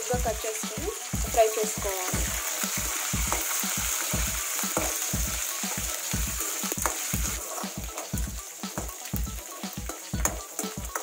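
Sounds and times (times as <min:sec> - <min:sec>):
oil sizzling: 0:00.0 - 0:11.0.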